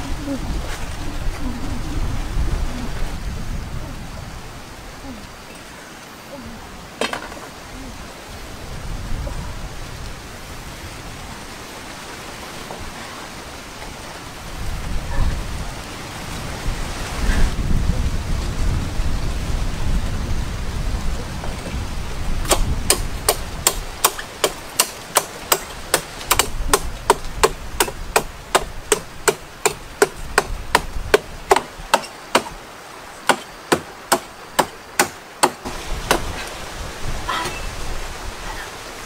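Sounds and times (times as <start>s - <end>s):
machete chopping palm stalk: 22.4s - 32.6s.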